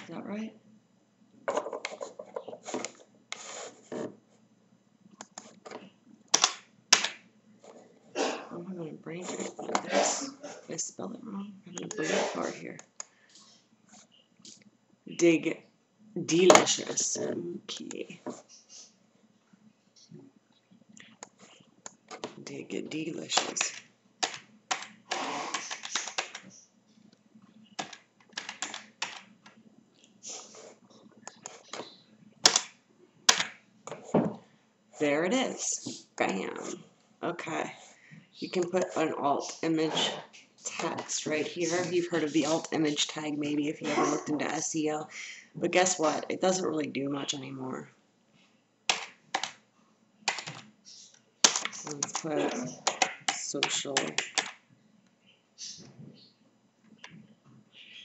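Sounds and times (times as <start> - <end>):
typing on computer keyboard: 23.4 - 26.5, 27.8 - 29.3, 50.3 - 50.6, 54.0 - 54.6
keyboard keys clicking: 27.7 - 29.6, 50.3 - 50.6.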